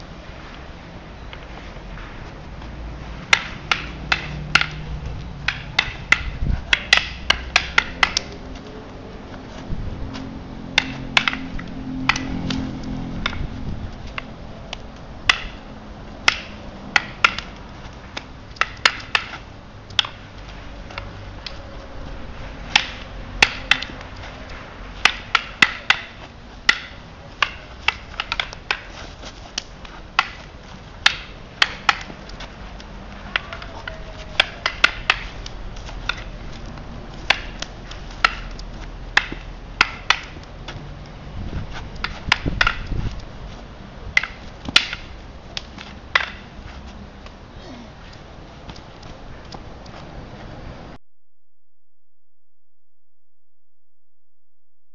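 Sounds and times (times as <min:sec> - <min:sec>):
sticks clacking together: 0:03.3 - 0:08.8, 0:10.8 - 0:13.4, 0:14.1 - 0:15.6, 0:16.2 - 0:21.6, 0:22.7 - 0:41.1, 0:41.9 - 0:43.3, 0:44.1 - 0:46.6.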